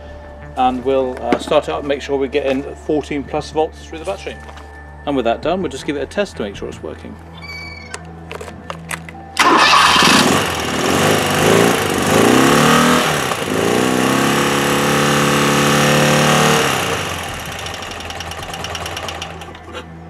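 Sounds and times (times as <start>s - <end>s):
motorcycle engine revving: 9.4s - 19.9s.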